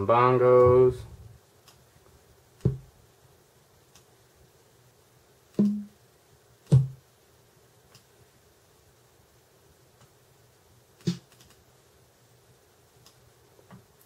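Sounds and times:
kick drum samples: 6.7s - 7.0s.

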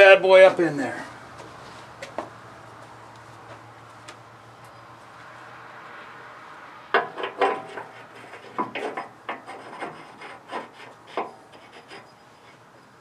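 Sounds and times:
metal clunks and scrapes: 6.9s - 12.9s.

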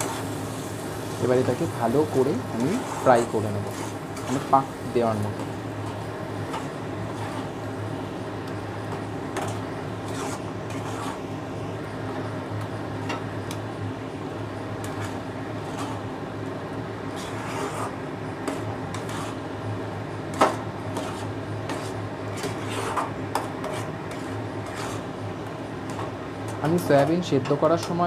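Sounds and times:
spatula scraping a pan: 0.0s - 7.8s, 8.8s - 11.4s, 14.8s - 16.2s, 17.0s - 19.6s, 20.2s - 27.1s
paste frying: 0.0s - 28.0s
steady low hum: 0.0s - 28.0s.

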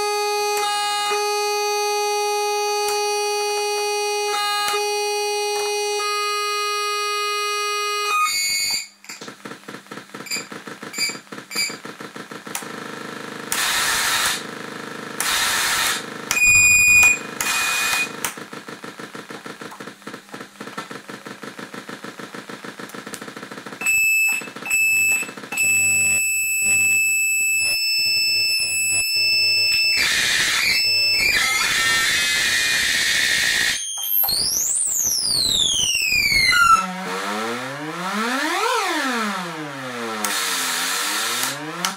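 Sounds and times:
electronic buzzing tone: 0.0s - 9.3s, 10.1s - 18.3s, 21.8s - 41.9s
fast clicking pulses: 9.2s - 25.5s, 29.9s - 41.9s
high electronic beeping tones: 10.3s - 11.8s, 16.3s - 18.2s, 33.5s - 36.9s.

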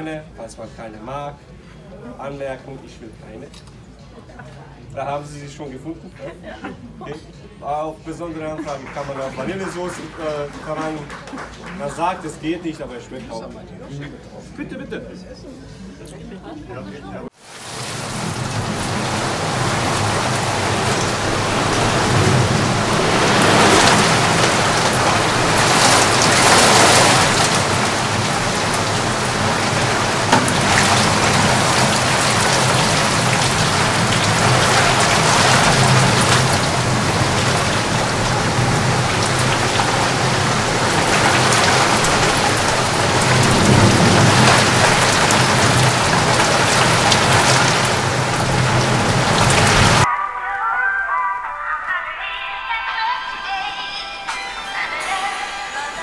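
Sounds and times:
heavy rain falling: 17.4s - 50.1s.

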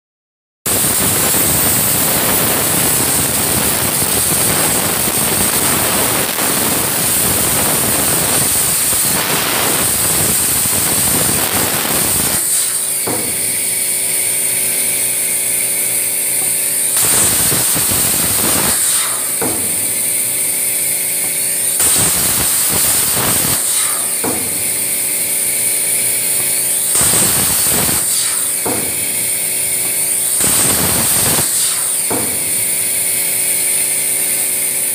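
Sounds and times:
machine hum: 0.7s - 34.9s
plasma cutter arc hissing: 0.7s - 34.9s.

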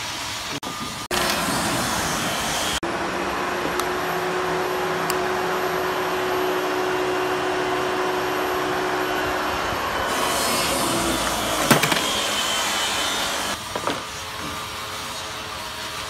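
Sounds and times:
rushing machine noise: 0.7s - 13.6s.

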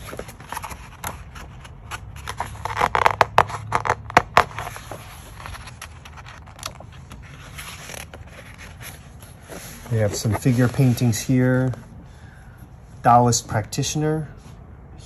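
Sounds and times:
book page being turned: 0.0s - 11.8s.

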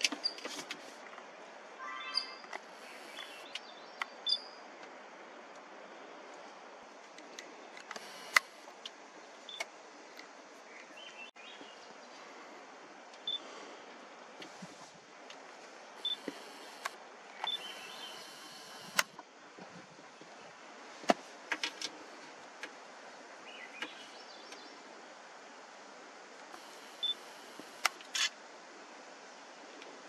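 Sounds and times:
steady hiss: 2.5s - 30.0s
camera zoom motor whirring: 7.9s - 8.6s, 16.0s - 19.2s, 26.6s - 28.0s.

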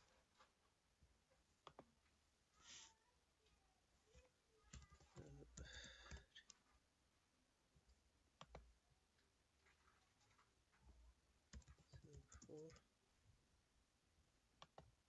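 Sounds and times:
keyboard typing: 4.1s - 6.6s, 8.4s - 8.7s, 11.4s - 12.9s, 14.6s - 15.0s
computer mouse clicks: 4.6s - 6.6s, 8.4s - 8.7s, 11.5s - 12.9s, 14.6s - 14.9s.

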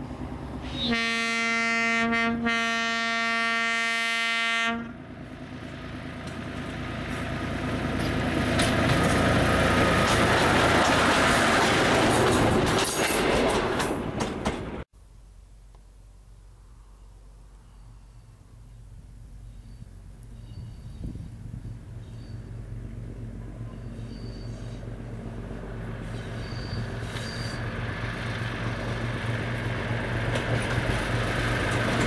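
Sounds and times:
railcar engine and wheels: 0.0s - 32.0s
railcar horn blast: 0.6s - 5.0s
wheels clicking over rail joints: 5.6s - 14.8s, 25.0s - 32.0s.

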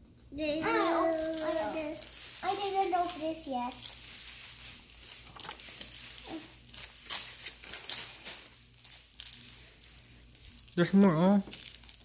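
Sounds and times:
wrapper crinkling and tearing: 0.6s - 12.0s.

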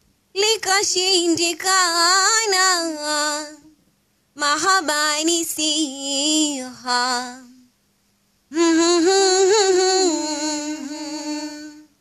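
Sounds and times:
woman chanting a poem: 0.4s - 3.7s, 4.4s - 7.7s.

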